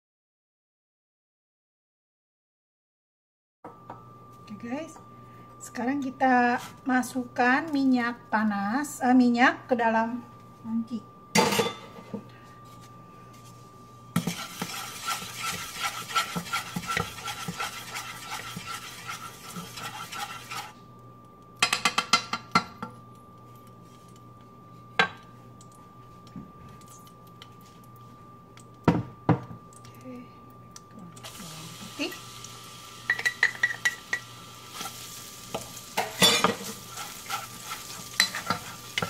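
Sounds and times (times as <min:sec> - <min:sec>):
spatula scraping saucepan: 0:14.2 - 0:20.8, 0:33.1 - 0:39.0.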